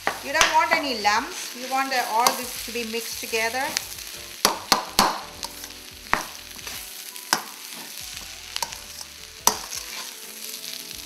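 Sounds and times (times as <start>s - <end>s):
soft sizzle: 0.0s - 11.0s
utensil scraping a metal pan: 5.4s - 10.4s.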